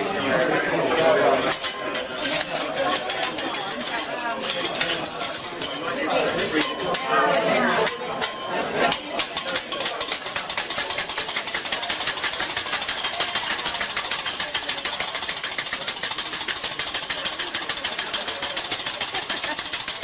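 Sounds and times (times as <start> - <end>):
spatula and knife striking griddle: 7.8 - 20.0.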